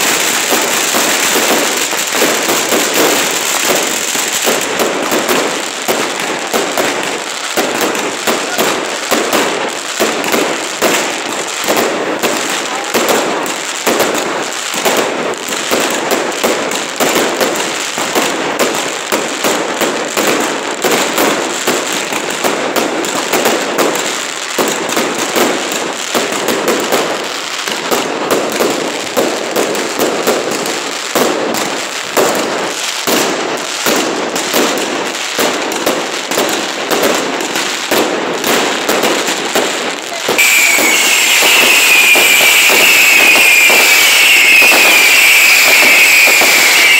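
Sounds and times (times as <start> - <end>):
firecracker bangs crackling: 0.0 - 46.9
high falling whistle: 40.4 - 46.9.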